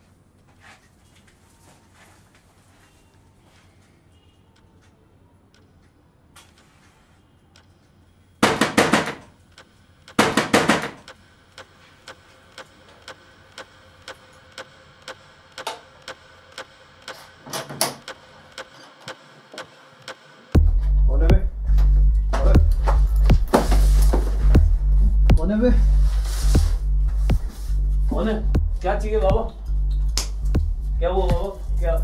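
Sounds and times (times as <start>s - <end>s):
loud knocking on door: 8.4s - 9.2s, 10.2s - 11.0s
steady ticking: 9.5s - 17.4s, 18.0s - 23.5s, 24.4s - 25.7s, 26.5s - 32.0s.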